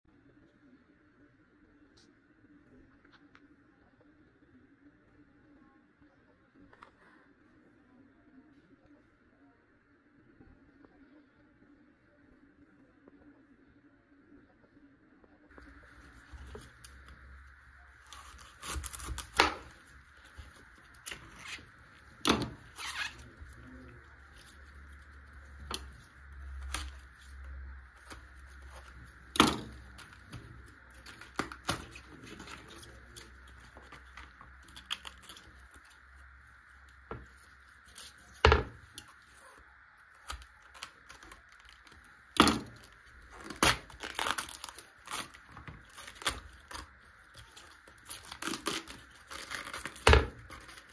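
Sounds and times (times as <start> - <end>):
cabbage leaves cracking: 15.5 - 50.9.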